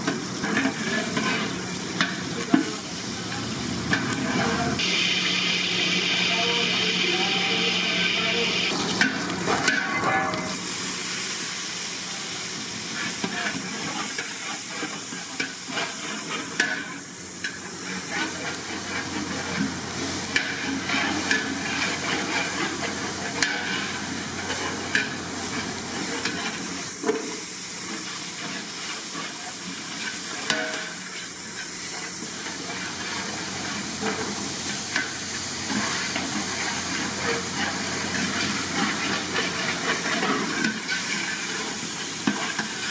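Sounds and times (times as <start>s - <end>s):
vegetables sizzling in hot oil: 0.0s - 42.9s
metal ladle scraping a pot: 20.3s - 27.2s, 35.7s - 42.9s.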